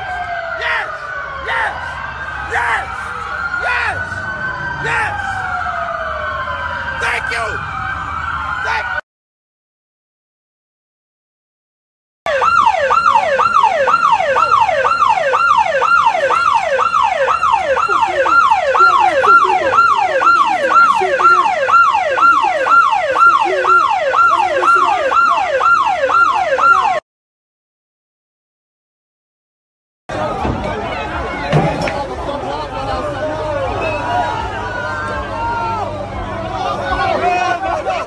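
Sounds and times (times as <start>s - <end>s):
electronic siren yelping: 0.0s - 9.0s, 12.3s - 27.0s.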